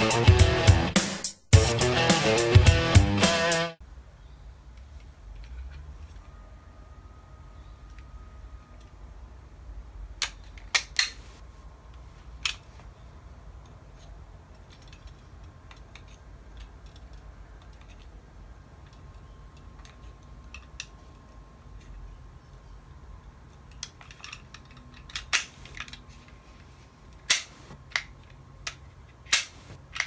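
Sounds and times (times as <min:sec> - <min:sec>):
toy revolver plastic clicks: 0:10.2 - 0:11.2, 0:13.6 - 0:18.2, 0:23.5 - 0:26.0, 0:27.2 - 0:30.0.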